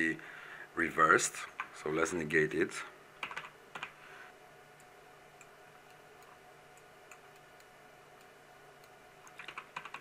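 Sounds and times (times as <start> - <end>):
low room hum: 0.0 - 10.0
keyboard and mouse clicks: 3.2 - 4.0, 8.8 - 10.0.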